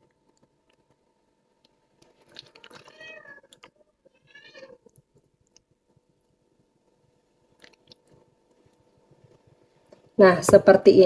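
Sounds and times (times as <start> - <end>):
cat meowing faintly: 2.6 - 4.9.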